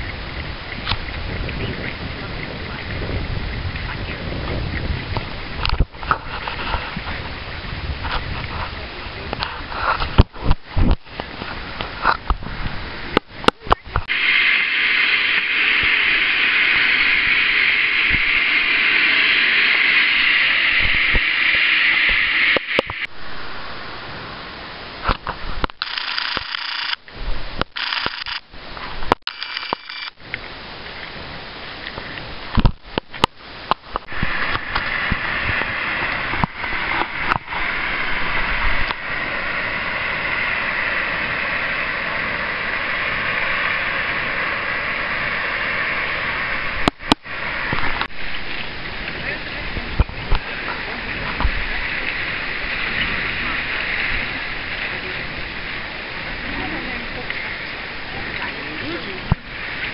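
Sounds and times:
steam hissing from vents: 14.0s - 23.1s.

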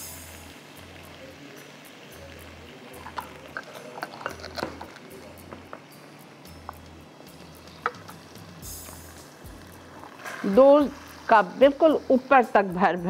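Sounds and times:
crisp vermicelli crackling: 2.4s - 5.9s.

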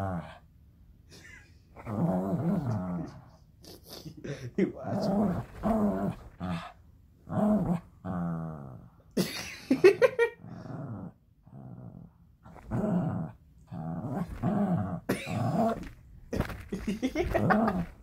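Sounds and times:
dog play-growling: 1.8s - 3.4s, 4.8s - 9.0s, 10.4s - 18.0s.

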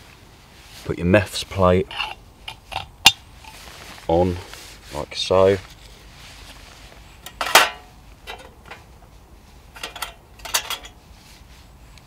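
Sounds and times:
metal parts clinking in a tin: 9.8s - 11.0s.

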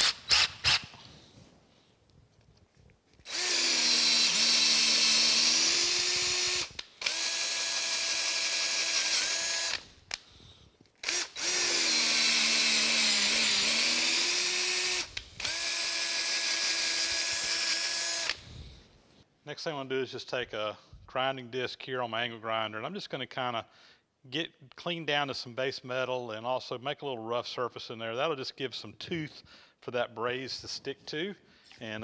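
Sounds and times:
cordless drill motor whining: 3.3s - 9.9s, 11.0s - 18.4s.

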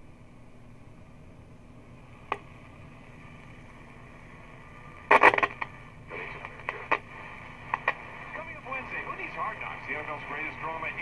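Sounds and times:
radio static crackling: 2.0s - 11.0s
radio knob click: 5.1s - 5.7s, 7.7s - 8.0s.

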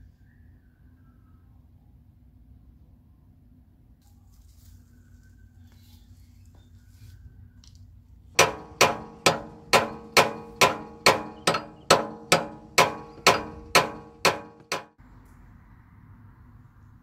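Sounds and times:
hammer blows on steel: 8.4s - 15.0s.

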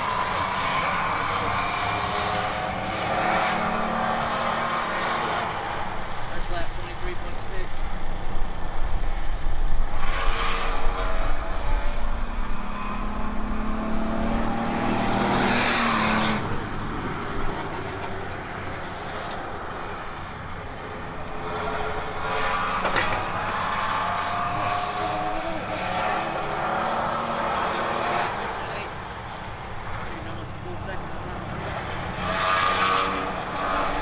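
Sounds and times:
race truck engine accelerating: 10.0s - 34.0s.

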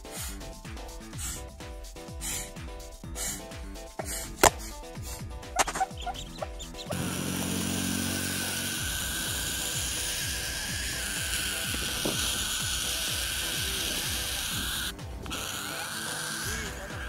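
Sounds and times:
owl rasping hiss: 0.0s - 8.0s
background music with low beat: 0.0s - 17.0s.

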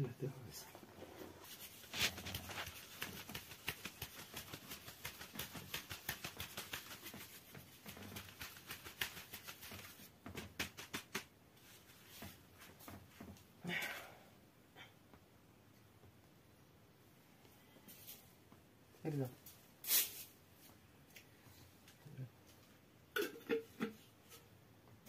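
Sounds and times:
sieve shaking with light taps: 1.4s - 13.3s.

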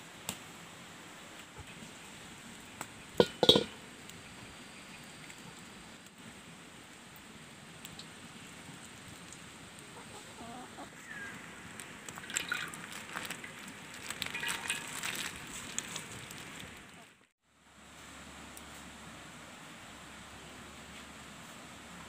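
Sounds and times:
chickens clucking: 9.8s - 11.2s.

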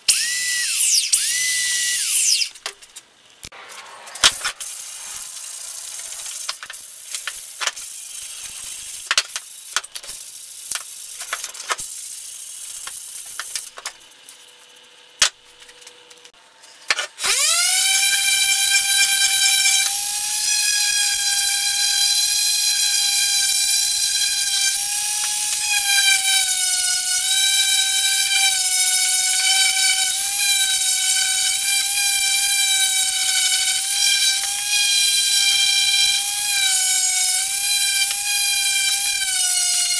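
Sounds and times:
orbital sander whining: 17.2s - 39.9s.

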